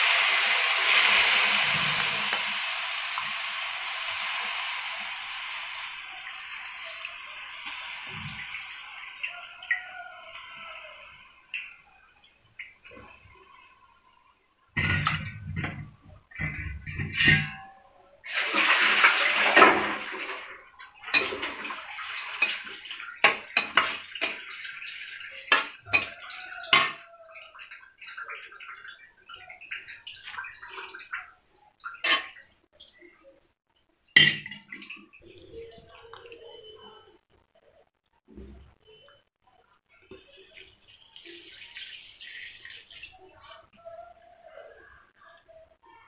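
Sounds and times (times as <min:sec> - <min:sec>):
ladle clinking and scraping pan: 0:14.8 - 0:17.8, 0:21.1 - 0:24.6, 0:25.3 - 0:27.0, 0:32.0 - 0:32.4.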